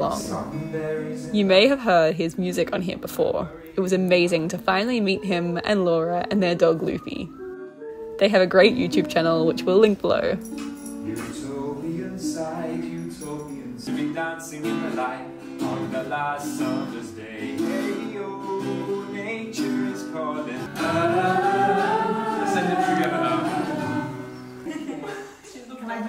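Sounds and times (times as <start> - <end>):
man singing: 0.0 - 1.6, 11.0 - 24.5
strummed acoustic guitar: 0.0 - 1.9, 8.4 - 25.2.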